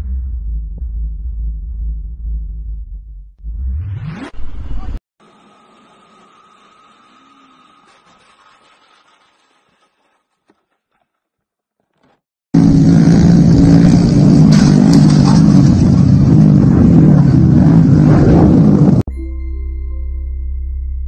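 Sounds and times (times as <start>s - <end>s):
motorcycles revving high: 12.6s - 19.0s.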